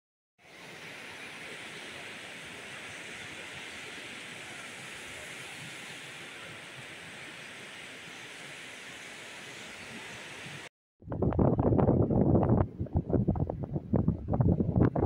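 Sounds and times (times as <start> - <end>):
surf rushing: 0.4 - 10.7.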